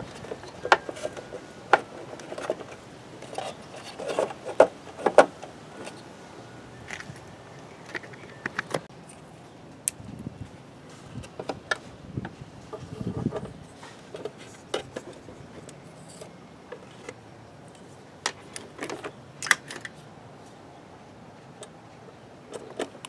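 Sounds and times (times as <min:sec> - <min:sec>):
rubbing and clatter: 0:00.0 - 0:06.0.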